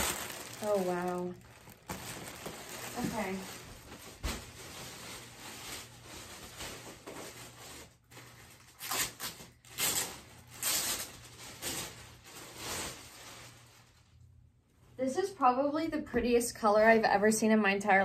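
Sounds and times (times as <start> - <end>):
dress fabric rustling: 0.0 - 8.2
plastic packaging crinkling: 0.0 - 14.2.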